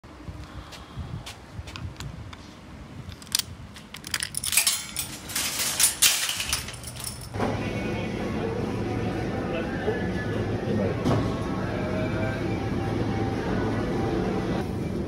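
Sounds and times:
shopping trolley rattling: 4.0s - 7.4s.

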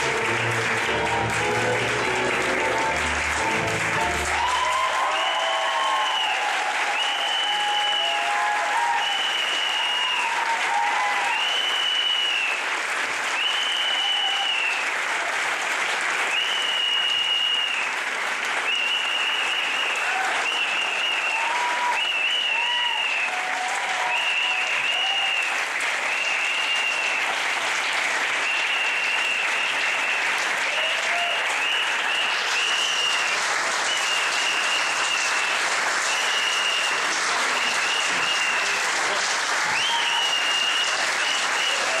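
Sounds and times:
audience applauding: 0.0s - 42.0s
high whistles: 9.0s - 10.2s, 11.3s - 12.6s, 31.6s - 38.8s, 39.7s - 42.0s.

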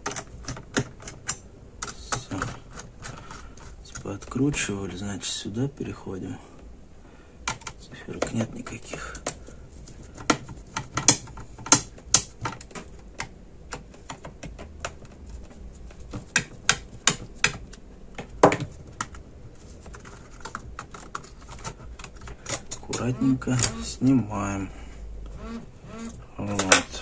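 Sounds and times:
screwdriver clicks and taps: 16.1s - 19.2s.

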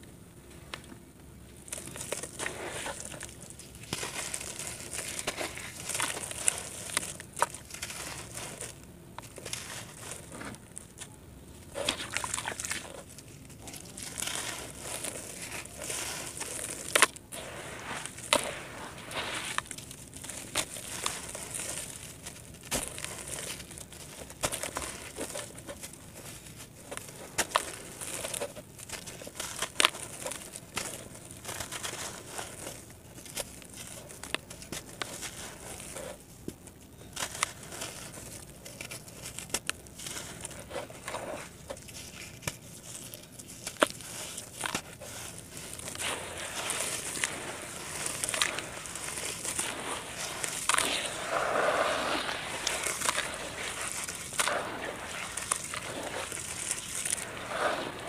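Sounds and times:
hands squishing wet mud: 1.6s - 58.0s
dirt crunching into water: 11.8s - 13.1s, 43.7s - 58.0s.

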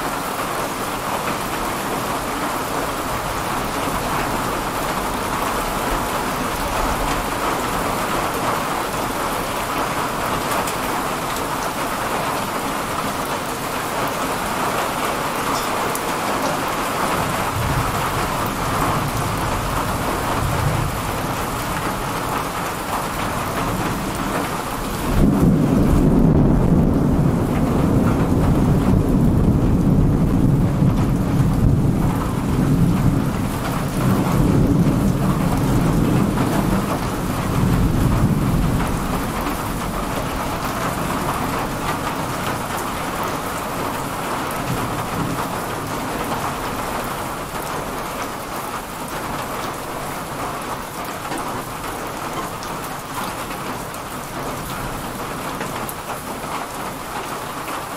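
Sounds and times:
heavy rain pouring: 0.0s - 57.9s
rolling thunder: 15.8s - 42.8s.

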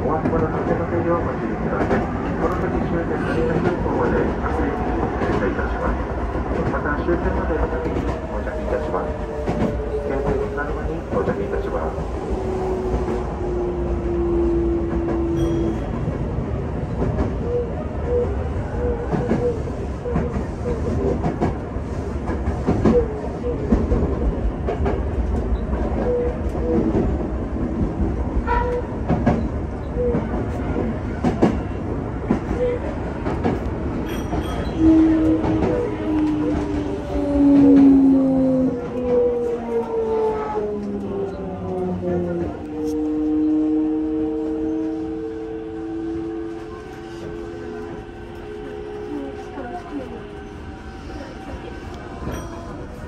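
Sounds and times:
passing train: 0.0s - 53.0s
train wheel and rail rumble: 0.0s - 53.0s
train wheels clacking over joints: 33.2s - 40.1s.

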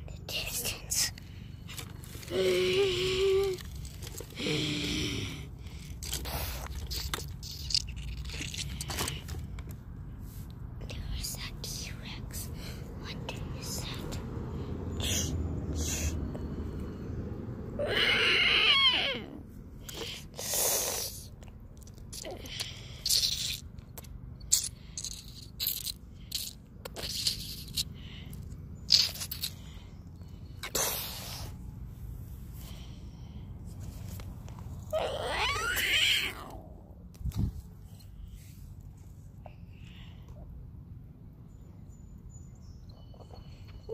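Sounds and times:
steady low rumble: 0.0s - 17.9s
scraping and rustling handling noise: 1.6s - 2.4s, 3.4s - 4.4s
plastic toys rattling together: 5.7s - 9.5s, 24.5s - 27.9s.

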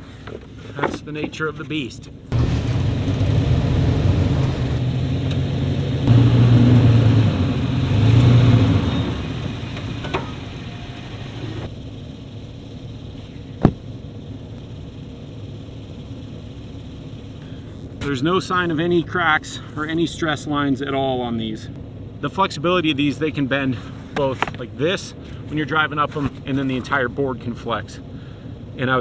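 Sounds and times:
truck engine under load: 2.3s - 18.7s.

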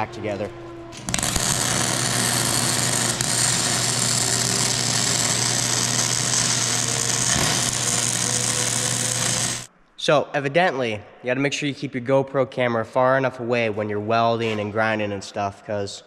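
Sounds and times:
welder low hum: 0.0s - 9.7s
welding arc noise: 0.9s - 9.7s.

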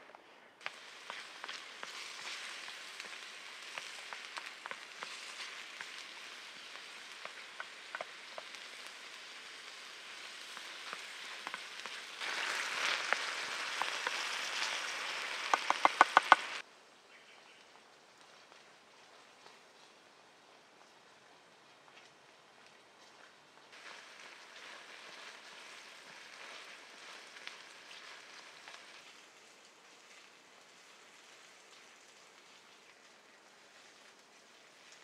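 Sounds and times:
vegetables sizzling in frying pan: 0.6s - 16.6s, 23.7s - 34.1s
wooden spoon tapping pan: 15.5s - 16.5s.

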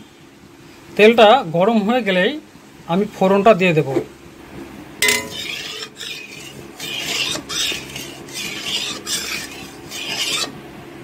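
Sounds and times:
metal spatula scraping a pan: 5.0s - 10.6s.

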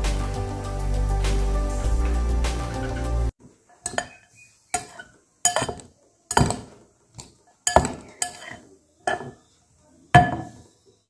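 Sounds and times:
spoon scraping a glass bowl: 3.8s - 6.7s, 7.7s - 9.4s.

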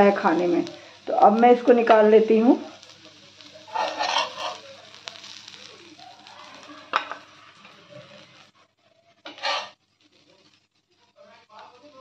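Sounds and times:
okra sizzling on a griddle: 0.0s - 12.0s
metal spatula scraping a pan: 3.7s - 4.7s, 9.2s - 9.8s.

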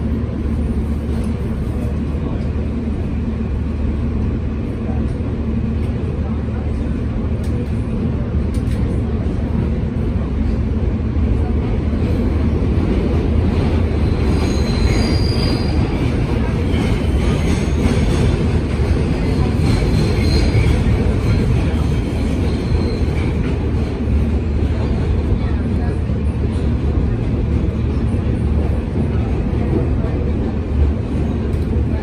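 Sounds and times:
subway train wheels rumbling: 0.0s - 32.0s
high-pitched wheel squeals: 14.2s - 15.8s.

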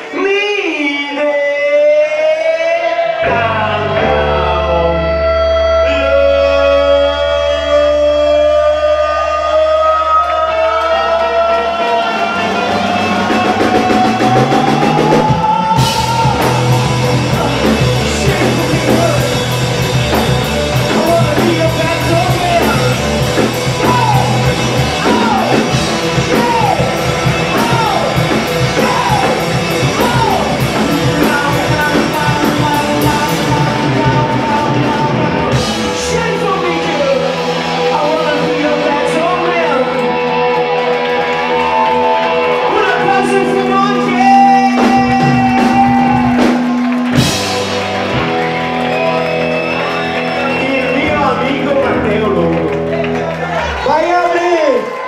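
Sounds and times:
person singing: 0.0s - 48.2s
bass guitar: 3.1s - 55.0s
electric guitars: 3.1s - 55.0s
drums and cymbals: 12.4s - 39.2s, 43.2s - 51.6s.

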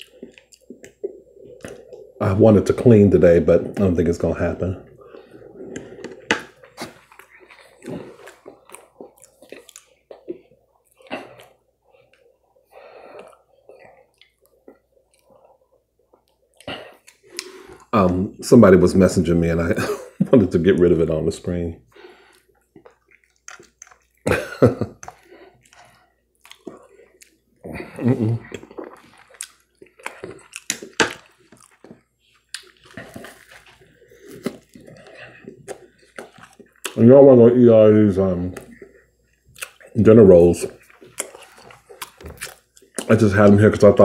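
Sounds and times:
wet chewing and lip-smacking: 0.0s - 2.2s, 5.0s - 17.9s, 22.2s - 24.3s, 24.9s - 37.0s, 38.5s - 40.0s, 40.6s - 43.6s.

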